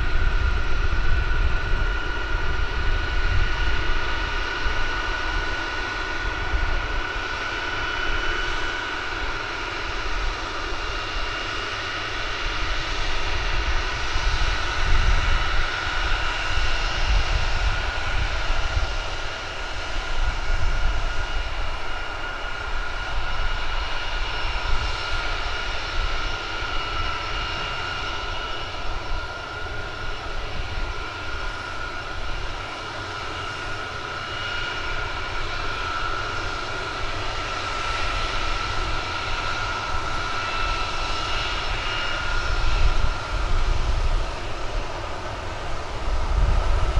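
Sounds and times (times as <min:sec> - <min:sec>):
jet engines whining: 0:00.0 - 0:46.9.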